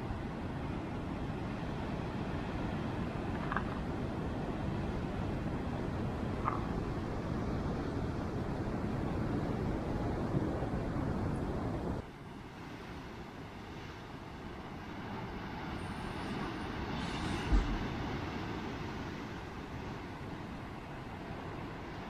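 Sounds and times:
wind on microphone: 0:01.1 - 0:12.0, 0:14.9 - 0:20.0
low thump: 0:17.4 - 0:18.0.

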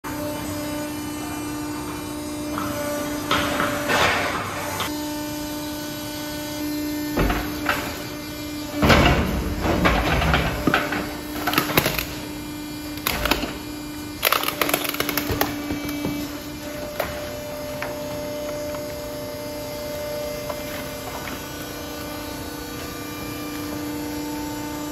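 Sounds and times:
machine hum: 0:00.1 - 0:24.9
plastic bags crunching and rustling: 0:11.0 - 0:18.8.

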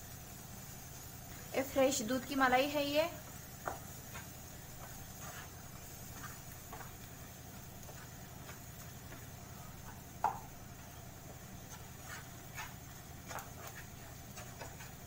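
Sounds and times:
faint steady hum: 0:00.0 - 0:15.0
wooden spatula scraping pan: 0:03.6 - 0:07.0, 0:11.6 - 0:15.0.

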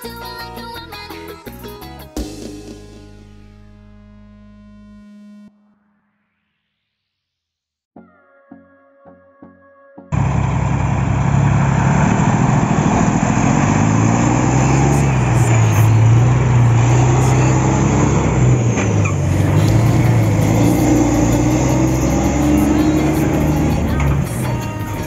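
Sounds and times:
synthesizer notes: 0:02.8 - 0:06.8, 0:14.1 - 0:24.6
truck diesel engine running: 0:10.2 - 0:25.0.

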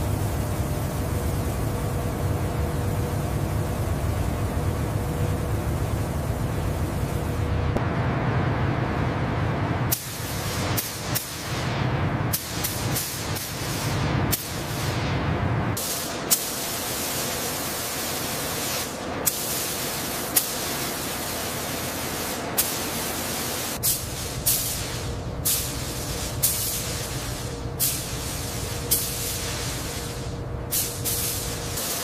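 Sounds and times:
spray gun hissing: 0:09.9 - 0:15.1, 0:15.8 - 0:32.0.

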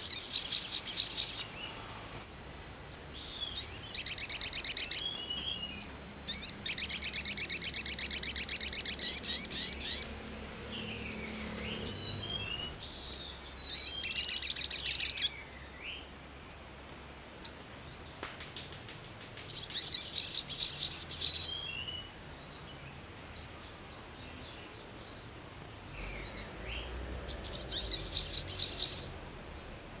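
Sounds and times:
bird high-pitched trill: 0:02.9 - 0:15.3, 0:27.3 - 0:29.1.

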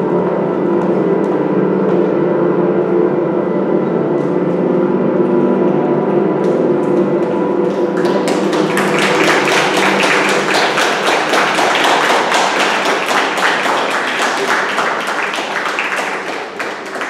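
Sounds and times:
audience applauding: 0:07.7 - 0:17.0.

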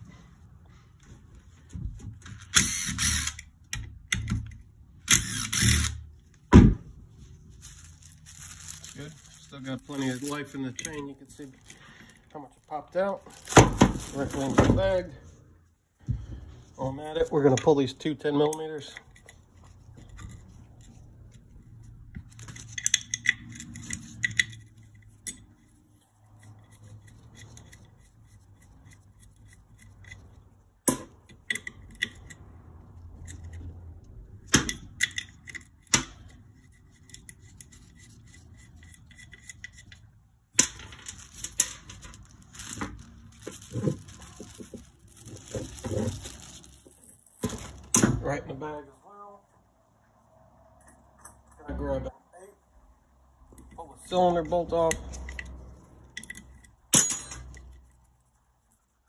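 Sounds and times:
metal tools clinking and knocking: 0:18.5 - 0:25.7, 0:53.5 - 0:58.0.

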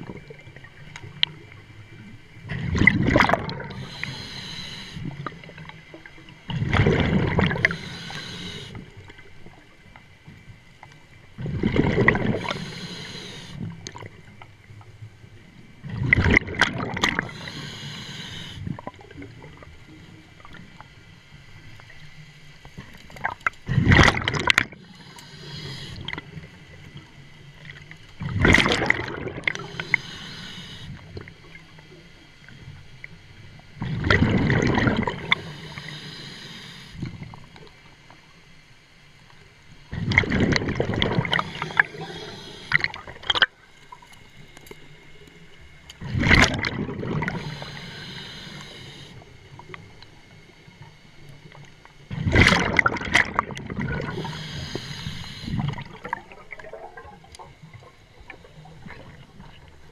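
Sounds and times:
exhaled bubbles gurgling underwater: 0:00.0 - 0:38.0, 0:39.5 - 0:59.9
regulator high hiss: 0:03.8 - 0:05.0, 0:07.6 - 0:08.8, 0:12.4 - 0:13.6, 0:17.3 - 0:18.6, 0:24.8 - 0:26.2, 0:29.6 - 0:31.0, 0:35.2 - 0:37.0, 0:41.2 - 0:42.9, 0:47.3 - 0:49.2, 0:54.1 - 0:55.6.

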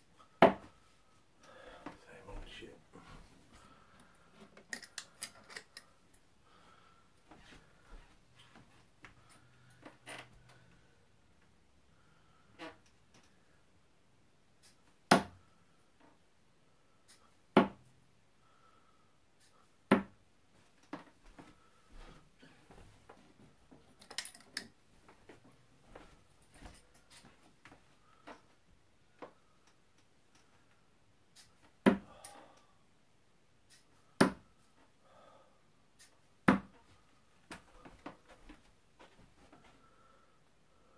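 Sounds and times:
darts thudding into dartboard: 0:15.1 - 0:15.4, 0:19.9 - 0:20.2, 0:36.4 - 0:36.8.

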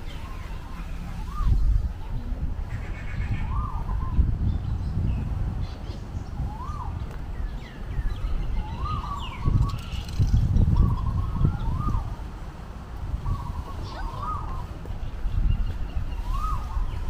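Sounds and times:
birds calling: 0:00.0 - 0:17.0.

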